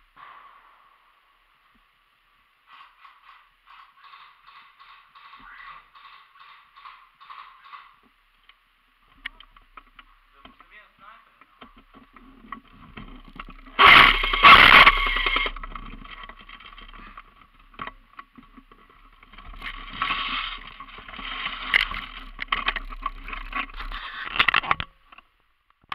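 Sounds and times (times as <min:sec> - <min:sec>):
small clicks and crackles: 0:11.4 - 0:25.9.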